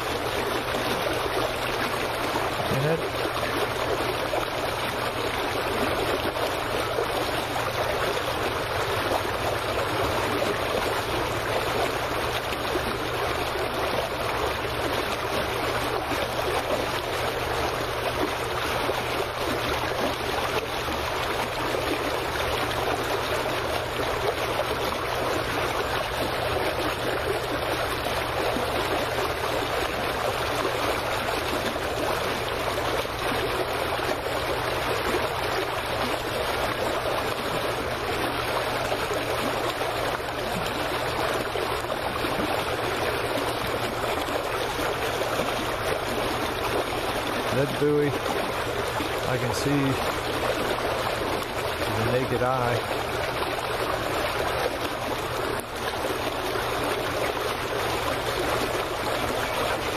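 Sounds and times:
small waves lapping against dock: 0.0 - 59.9.

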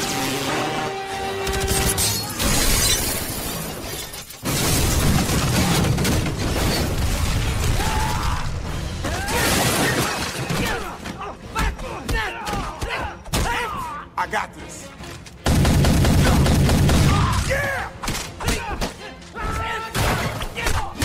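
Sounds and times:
glass breaking: 1.7 - 7.7, 9.2 - 10.8.

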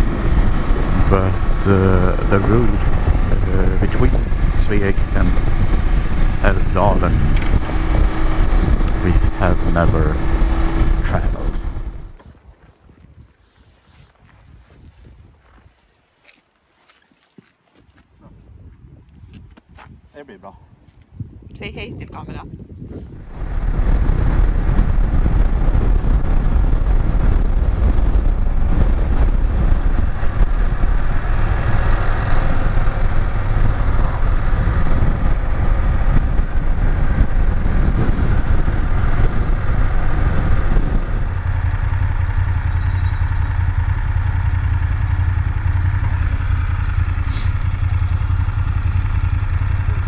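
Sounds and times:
motorcycle engine: 0.0 - 12.3, 23.1 - 50.0
wind rush: 0.0 - 15.7, 18.2 - 50.0.

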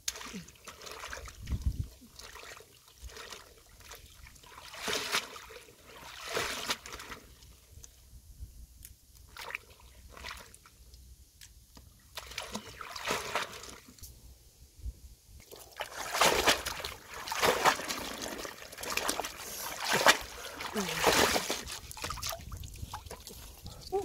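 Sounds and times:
water splashing and sloshing: 0.0 - 7.9, 9.2 - 10.8, 11.4 - 14.0, 15.4 - 24.0.

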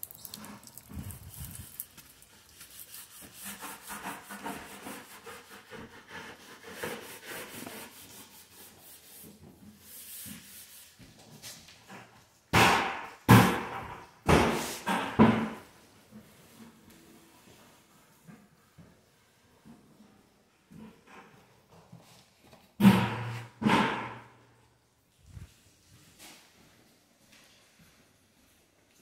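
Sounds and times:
footsteps: 0.0 - 4.8.

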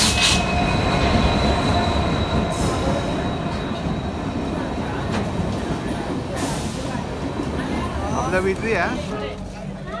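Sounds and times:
high wheel squeal: 0.0 - 4.7
train rumbling past: 0.0 - 10.0.

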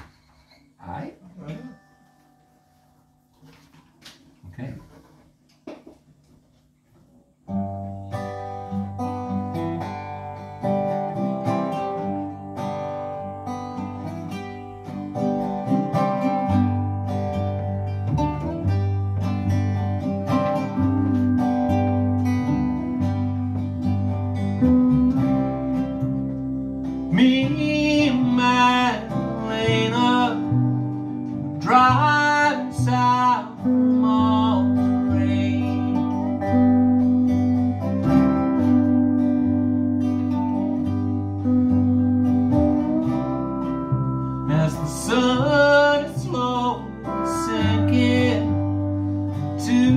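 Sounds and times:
pedal steel notes: 7.6 - 49.9
man singing: 27.1 - 30.7, 31.5 - 36.6, 44.4 - 49.9.

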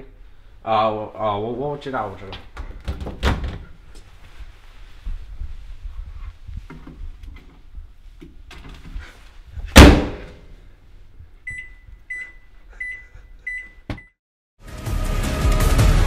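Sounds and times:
microwave keypad beeps: 11.5 - 14.2.

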